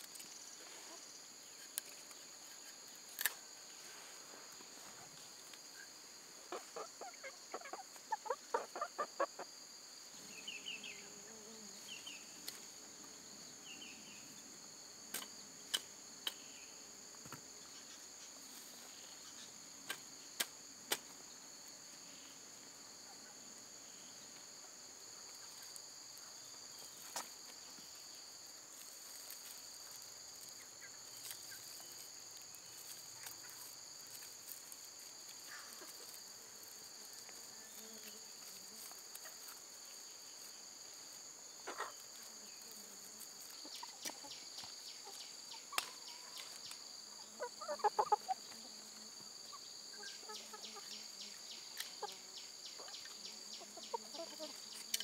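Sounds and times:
insects droning: 0.0 - 55.0
chicken clucking: 6.5 - 9.5, 41.6 - 42.3, 43.4 - 46.6, 47.4 - 48.8, 49.5 - 51.0, 52.8 - 55.0.

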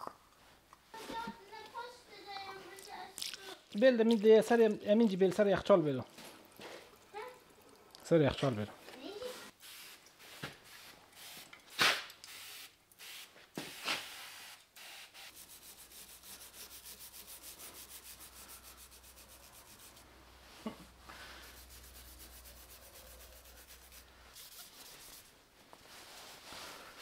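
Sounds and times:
plastic brush scrubbing metal: 15.3 - 20.0, 21.4 - 25.4.

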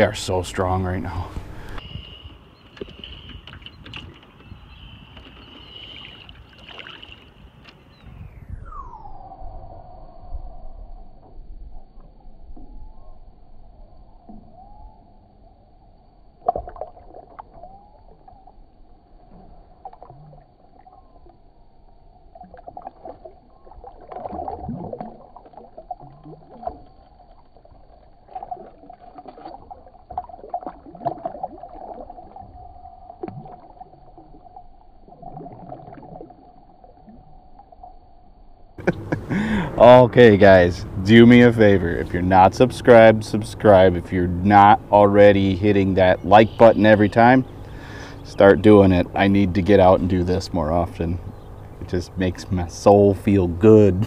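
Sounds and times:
water splashing and sloshing: 0.0 - 8.1, 16.3 - 38.1
faint steady hum: 4.4 - 54.0.

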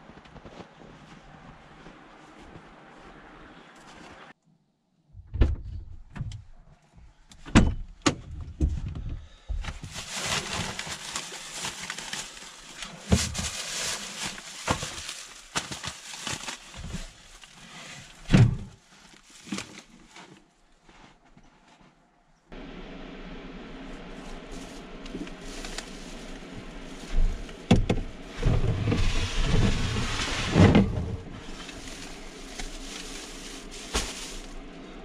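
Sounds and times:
rough scraping and crunching: 9.8 - 22.0, 24.0 - 35.0.

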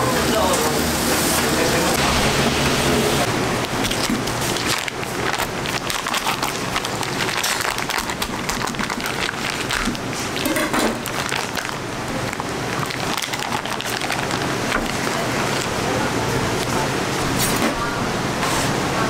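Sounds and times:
plastic pack crinkling: 3.6 - 15.8.

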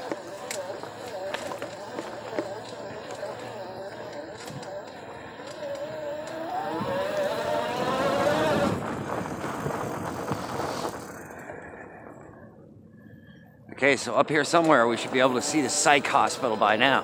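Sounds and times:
small motor whining: 0.0 - 11.3
tyres on gravel: 0.0 - 11.4.

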